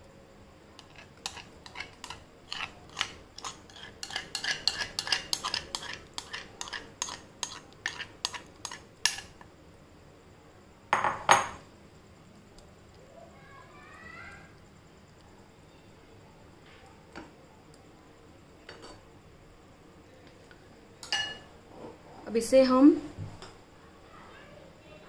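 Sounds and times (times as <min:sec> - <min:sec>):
spoon clattering: 0:00.8 - 0:09.4
spoon scraping and tapping bowl: 0:00.8 - 0:09.5.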